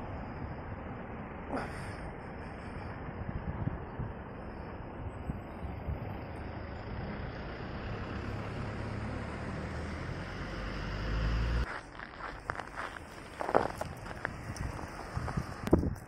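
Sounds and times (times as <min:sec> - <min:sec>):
road traffic: 0:00.0 - 0:16.0
vehicle engine rumble: 0:00.0 - 0:16.0
footsteps crunching in snow: 0:11.6 - 0:16.0.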